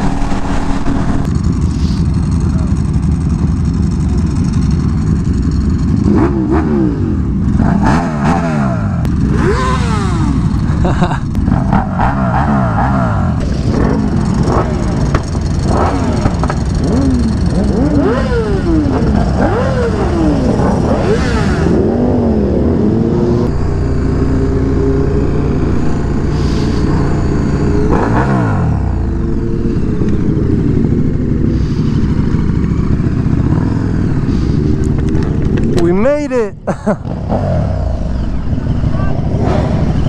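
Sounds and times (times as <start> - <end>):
motorcycle engines revving: 0.0 - 40.0.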